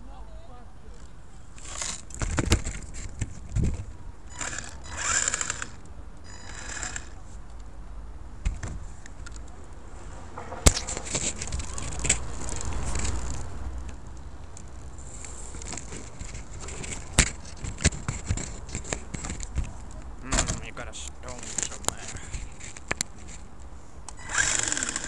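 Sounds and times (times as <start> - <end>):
rc truck rumble and rattle: 1.6 - 7.2, 10.3 - 20.6, 24.2 - 25.0
sharp knocks and clatter: 10.3 - 13.5.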